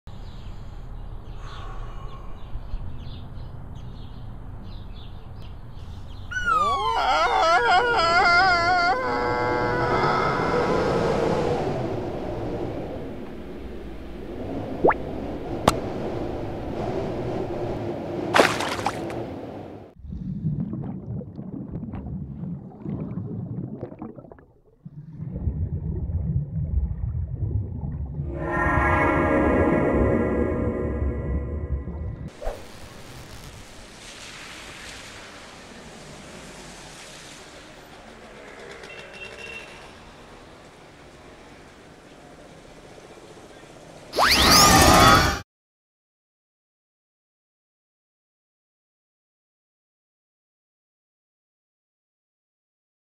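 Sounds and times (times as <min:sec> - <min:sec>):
faint gurgling: 0:20.0 - 0:28.3
low muffled underwater rumble: 0:20.0 - 0:28.4.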